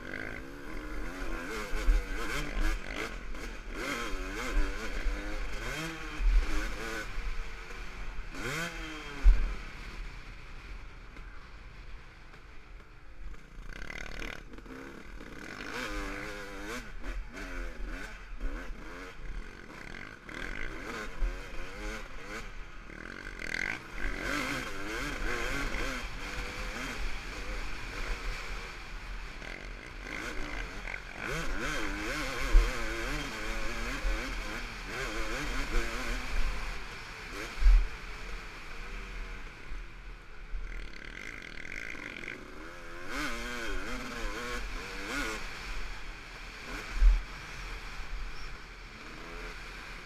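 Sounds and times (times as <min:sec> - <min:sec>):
dirt bike engine revving: 0:00.0 - 0:11.4, 0:12.3 - 0:50.0.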